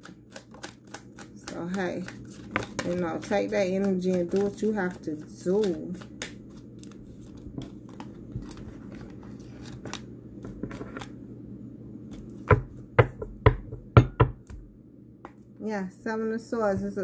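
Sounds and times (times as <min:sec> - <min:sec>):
cards being shuffled by hand: 0:00.4 - 0:11.2.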